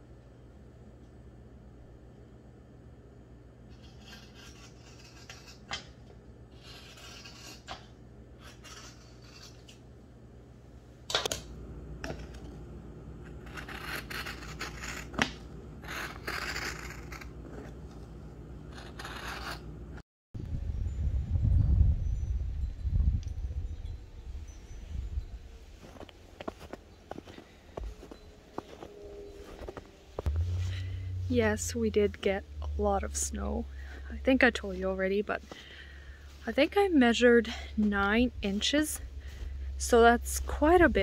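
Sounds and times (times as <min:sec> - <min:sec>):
low rumble: 0:27.8 - 0:41.0.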